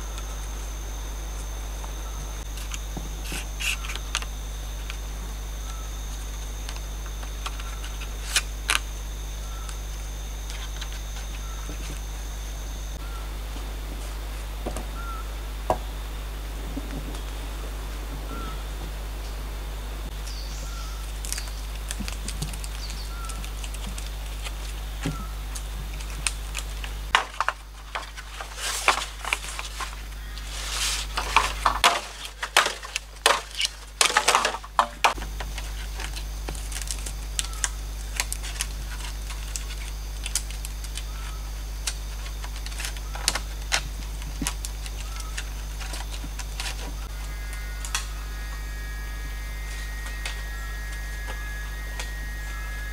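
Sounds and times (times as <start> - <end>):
forest ambience: 0.0 - 52.9
small ticks: 20.2 - 28.2, 35.6 - 52.9
machete knocking and scraping bamboo: 27.1 - 36.6
short animal call: 47.1 - 52.9.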